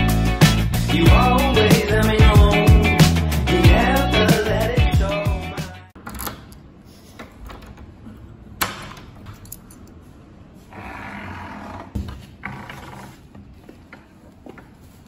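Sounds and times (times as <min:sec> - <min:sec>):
door scraping open: 0:10.6 - 0:13.3.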